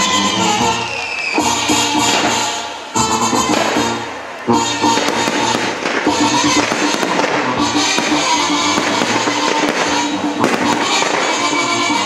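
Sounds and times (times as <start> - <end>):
music playing: 0.0 - 12.0
firework shells bursting and crackling: 3.4 - 4.1, 4.7 - 12.0.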